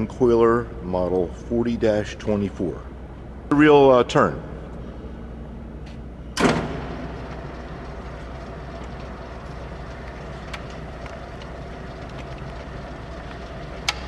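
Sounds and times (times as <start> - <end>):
loud clunk: 6.4 - 7.6
motorized reel humming: 6.4 - 14.0.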